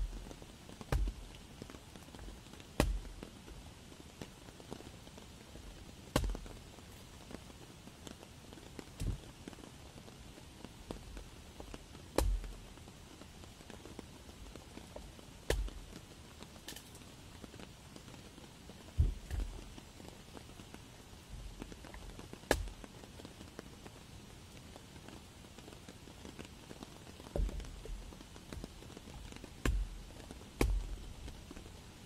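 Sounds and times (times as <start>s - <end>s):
faint steady hiss: 0.0s - 32.0s
hatchet chopping log: 0.8s - 1.4s, 2.8s - 3.2s, 6.1s - 6.5s, 12.2s - 12.6s, 15.5s - 16.0s, 22.5s - 22.7s, 29.6s - 30.0s, 30.6s - 31.0s.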